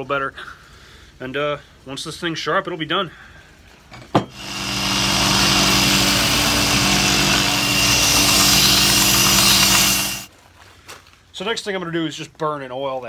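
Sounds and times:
grinding hiss on metal: 0:04.4 - 0:10.3
motor hum: 0:04.4 - 0:10.3.

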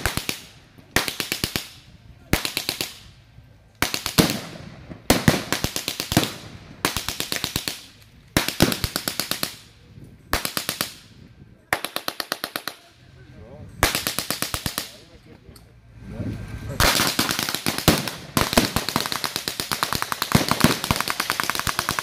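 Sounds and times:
gunfire echo: 0:03.8 - 0:09.6, 0:16.8 - 0:22.0.

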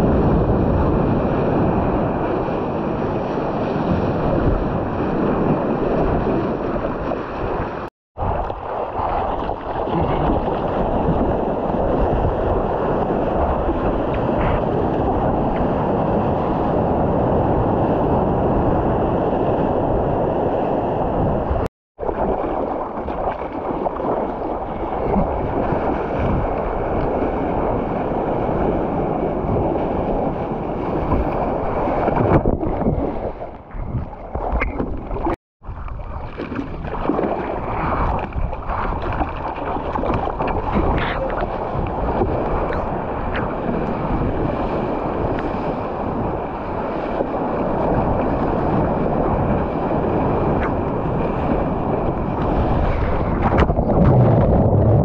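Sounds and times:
wind buffeting microphone: 0:00.0 - 0:55.0
water sloshing and splashing: 0:05.8 - 0:15.7, 0:22.0 - 0:28.5, 0:29.5 - 0:55.0.

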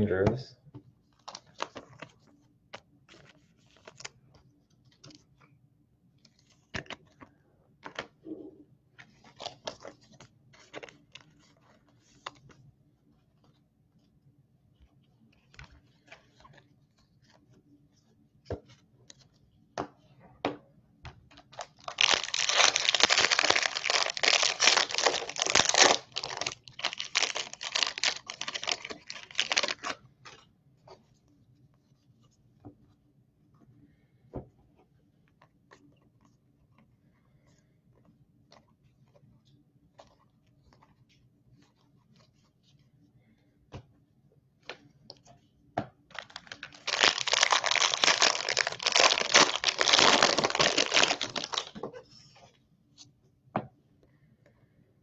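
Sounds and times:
trading cards being handled: 0:21.3 - 0:30.4, 0:46.1 - 0:51.9
foil wrapper crinkling and tearing: 0:21.6 - 0:30.0, 0:46.1 - 0:51.8.

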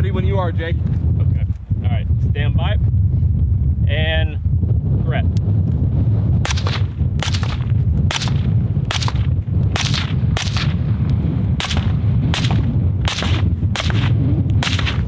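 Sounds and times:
suppressed rifle shots: 0:06.5 - 0:15.0.

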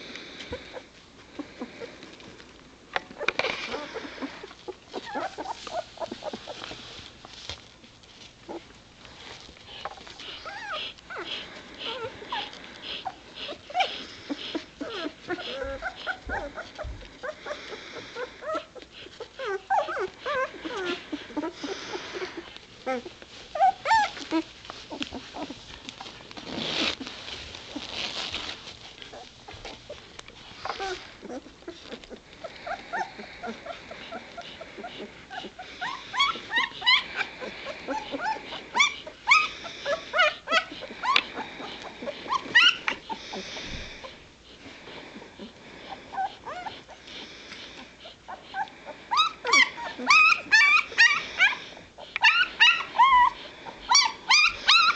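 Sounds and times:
puppies rustling on a pad: 0:00.0 - 0:54.9
puppy squeak: 0:35.4 - 0:37.3, 0:42.3 - 0:43.0, 0:52.2 - 0:54.9.

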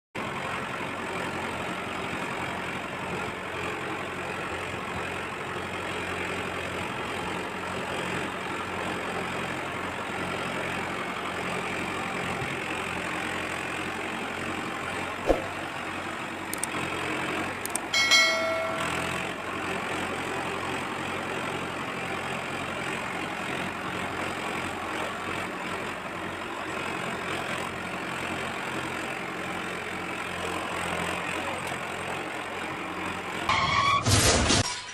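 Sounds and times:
tractor engine idling: 0:00.2 - 0:33.5
sharp knock: 0:15.3 - 0:15.6
short high beep: 0:18.0 - 0:19.1.

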